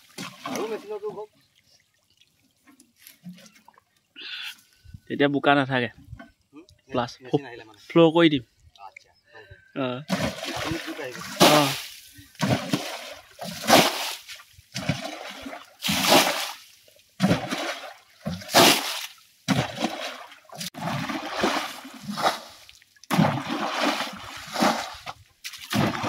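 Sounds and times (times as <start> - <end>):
water splashing from scoop: 0.0 - 1.1, 10.1 - 26.0.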